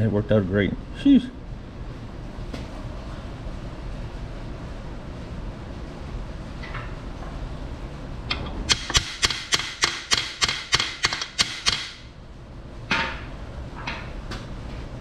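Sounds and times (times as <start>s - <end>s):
hammer tapping on metal: 8.3s - 12.0s.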